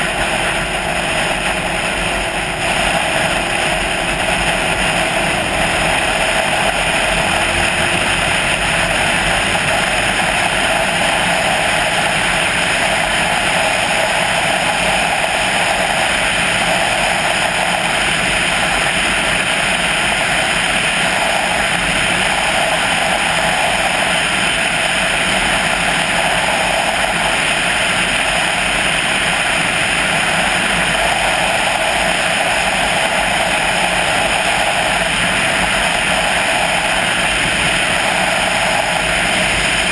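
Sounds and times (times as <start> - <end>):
wind and road noise: 0.0 - 39.9.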